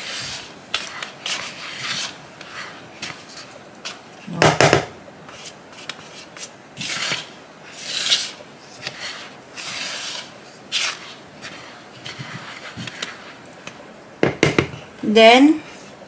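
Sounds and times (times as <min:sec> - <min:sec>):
spatula scraping flour in bowl: 0:00.0 - 0:04.0, 0:05.3 - 0:13.4.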